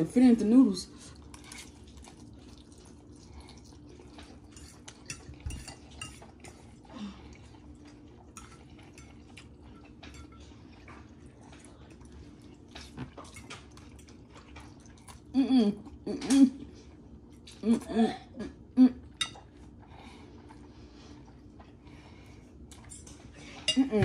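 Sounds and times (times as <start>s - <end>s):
faint steady hum: 0.0s - 24.0s
forks clinking and scraping plates: 4.4s - 6.6s, 8.4s - 10.4s.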